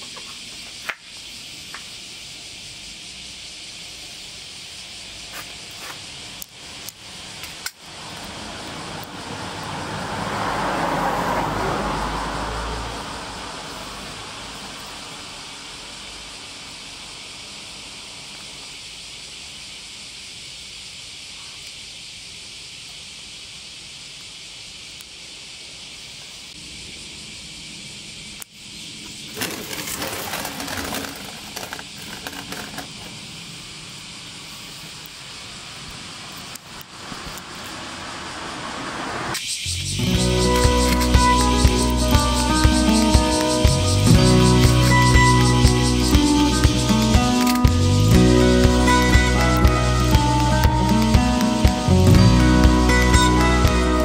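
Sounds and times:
steady outdoor hiss: 0.0s - 54.0s
vehicle passing: 7.2s - 15.8s, 37.6s - 47.1s
sharp clicks: 46.1s - 47.9s.

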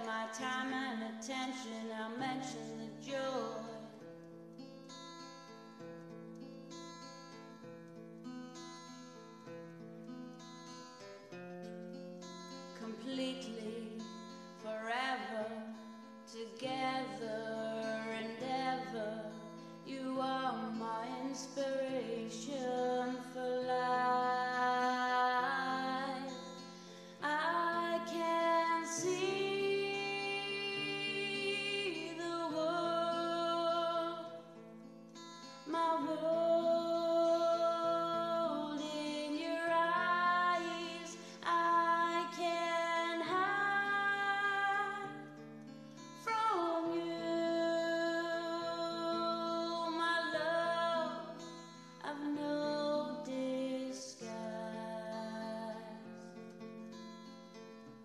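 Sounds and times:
woman singing: 0.0s - 4.1s, 12.6s - 45.4s, 46.0s - 56.4s
strummed acoustic guitar: 0.0s - 58.0s.

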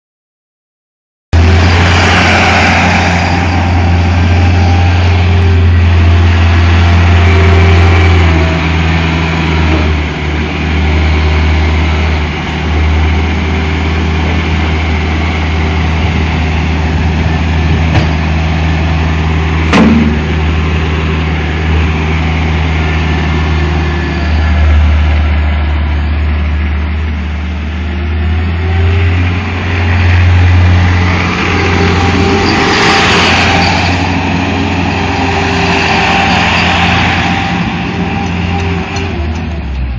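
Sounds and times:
skid steer loader engine running: 1.4s - 39.9s
sharp knocks: 17.8s - 18.2s, 19.7s - 20.5s.

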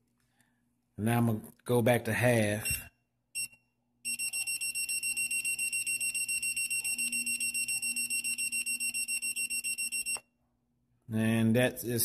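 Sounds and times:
transmitter beeps: 2.6s - 10.2s.

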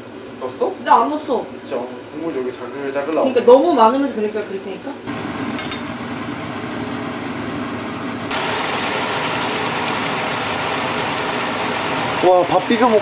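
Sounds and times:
meat sizzling in a pan: 8.3s - 13.0s.

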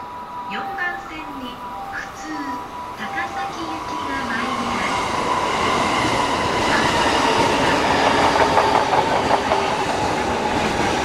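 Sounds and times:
steady high tone: 0.0s - 8.3s
train wheels clattering over rail joints: 7.3s - 11.0s.

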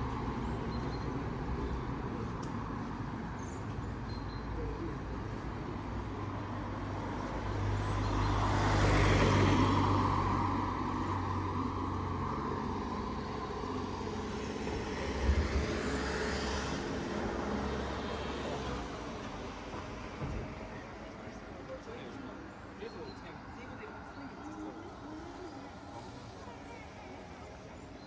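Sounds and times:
car passing by: 6.2s - 21.5s.

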